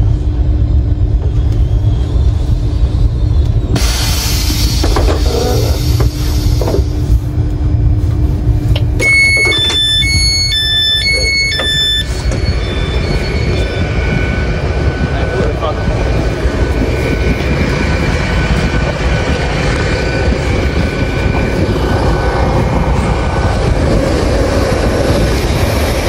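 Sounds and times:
low rumble and hum: 0.0 - 26.0
train door hiss: 3.8 - 7.2
two-note door warning beeps: 9.0 - 13.1.

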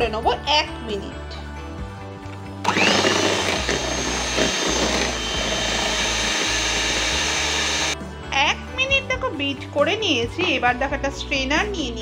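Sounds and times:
electric hand mixer motor whine: 2.6 - 8.0.

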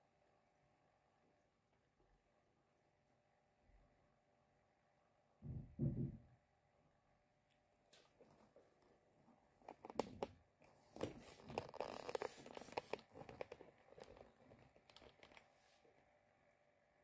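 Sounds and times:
handling rustling: 8.0 - 15.8.

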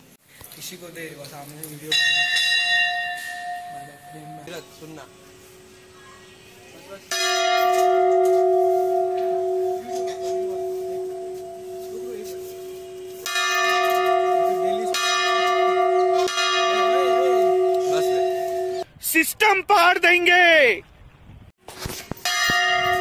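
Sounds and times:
large brass bell ringing: 1.9 - 6.2, 6.8 - 18.9, 22.2 - 23.0.

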